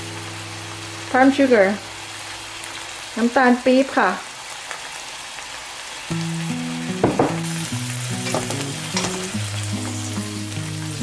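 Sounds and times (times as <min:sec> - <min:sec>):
paste sizzling in hot oil: 0:00.0 - 0:11.0
background music with held notes: 0:06.1 - 0:11.0
spatula scraping wok: 0:08.1 - 0:10.2.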